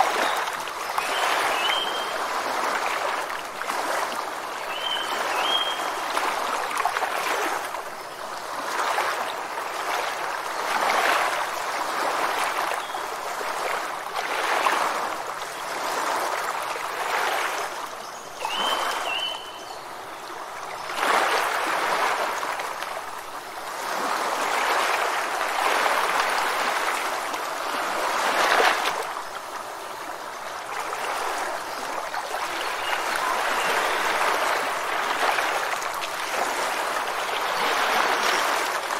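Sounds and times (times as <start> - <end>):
surf washing over rocks: 21.0 - 38.9.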